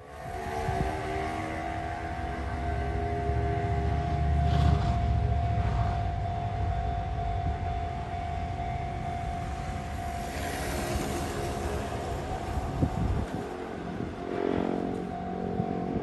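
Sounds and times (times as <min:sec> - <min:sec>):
steady tone: 0:00.0 - 0:16.0
wind rumble on microphone: 0:00.0 - 0:16.0
motor scooter engine: 0:09.2 - 0:13.8.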